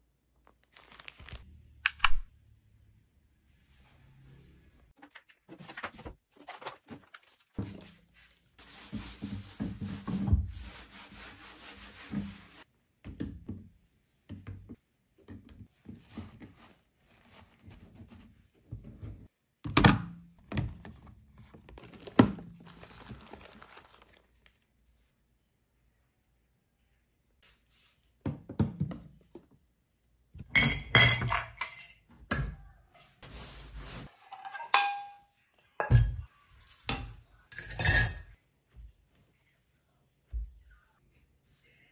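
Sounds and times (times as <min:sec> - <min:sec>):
handling toiletries and plastic basket: 0:00.4 - 0:01.4, 0:05.0 - 0:10.6, 0:14.3 - 0:19.3, 0:20.4 - 0:24.5
sponge scrubbing shelf: 0:03.6 - 0:12.7, 0:15.7 - 0:19.3, 0:33.0 - 0:34.3.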